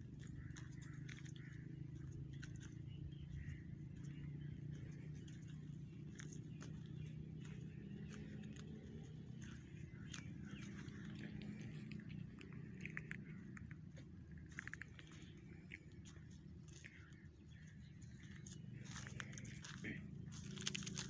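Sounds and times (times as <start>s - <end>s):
steady low hum: 0.0s - 21.0s
dry leaves crunching underfoot: 4.1s - 13.6s, 14.4s - 21.0s.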